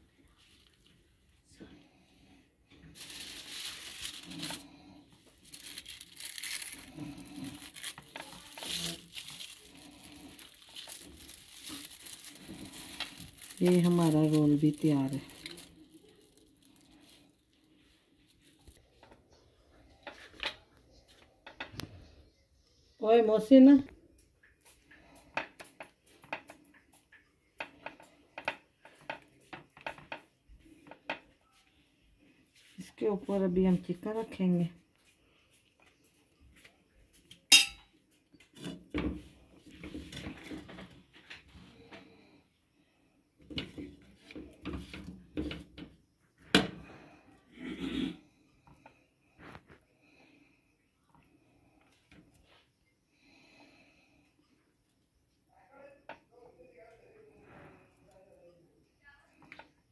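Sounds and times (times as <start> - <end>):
flatbread wrap rustling and crinkling: 0.0 - 1.4, 2.7 - 19.4.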